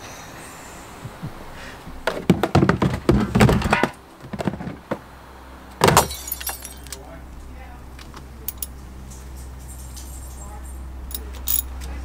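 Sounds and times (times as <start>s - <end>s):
tools and parts knocking: 2.1s - 5.0s.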